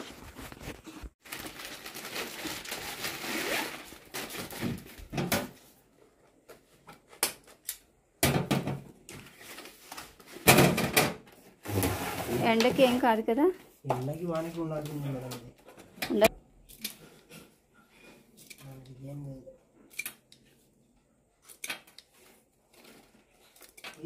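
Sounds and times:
rustling and scraping: 0.0s - 1.2s, 20.4s - 24.0s.

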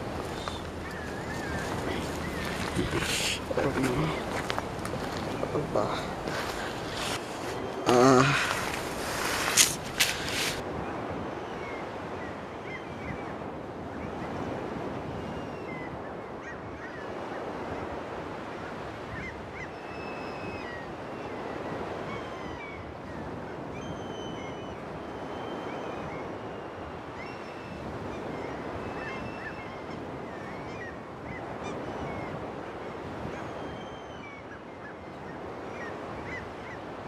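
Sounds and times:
small birds chirping: 0.1s - 10.6s.

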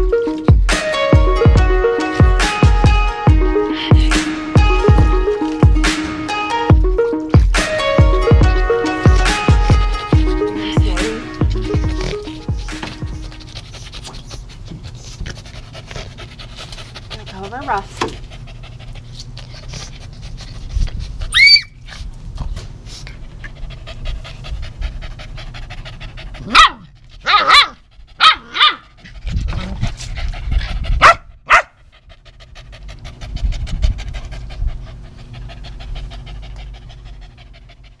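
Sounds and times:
puppies panting: 0.0s - 38.0s
puppies barking: 0.3s - 13.5s, 21.3s - 21.8s, 26.4s - 28.9s, 31.0s - 31.8s
puppy squealing: 21.3s - 22.0s.

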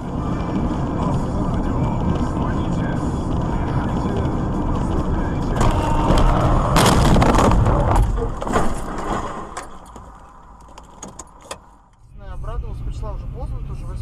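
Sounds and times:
road noise inside car: 0.0s - 8.8s, 9.4s - 14.0s
knocks and rattles: 3.2s - 11.7s
loud crunching car impact: 5.5s - 10.7s.

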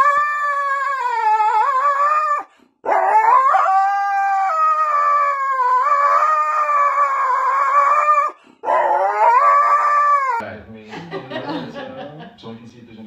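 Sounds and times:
dog howling: 0.0s - 10.4s.

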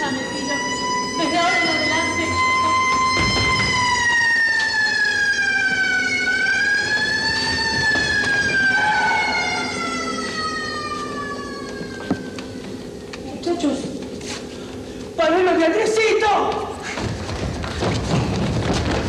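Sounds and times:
siren wailing: 0.0s - 13.2s.

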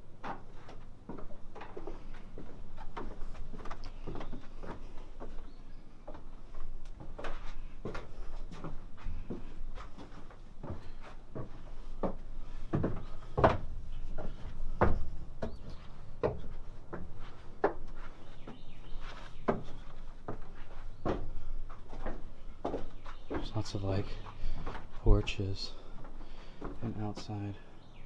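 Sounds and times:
footsteps on wooden floorboards: 0.0s - 27.7s.

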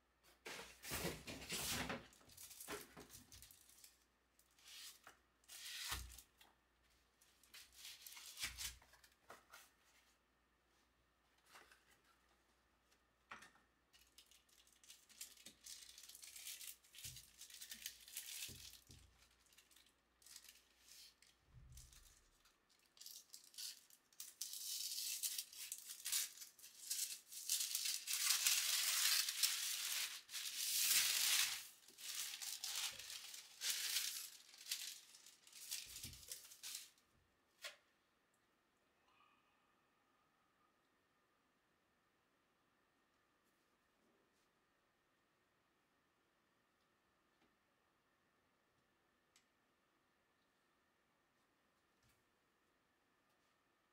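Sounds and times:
paper wrapping crinkling and tearing: 0.8s - 4.0s, 4.6s - 6.3s, 14.0s - 37.0s.

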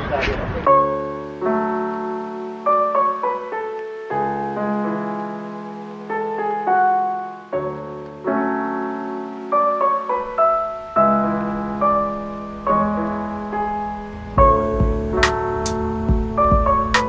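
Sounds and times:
slow piano music: 0.6s - 17.0s.

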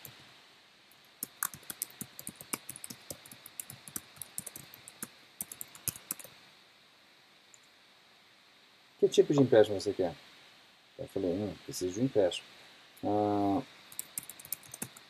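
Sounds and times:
computer keyboard typing: 1.2s - 6.3s, 13.9s - 15.0s.

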